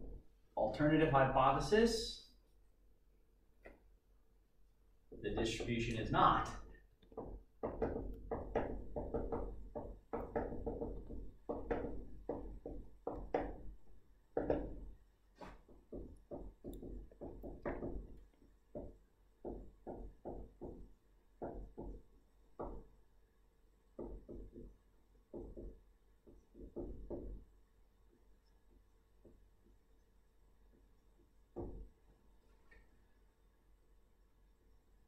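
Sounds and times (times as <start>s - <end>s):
pen tapping while handwriting: 7.0s - 15.0s, 15.6s - 22.9s, 24.0s - 27.5s, 28.1s - 29.8s.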